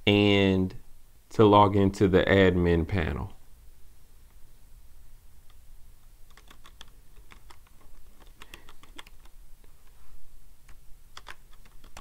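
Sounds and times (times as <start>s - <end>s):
typing on a keyboard: 6.3s - 9.4s, 10.7s - 12.0s.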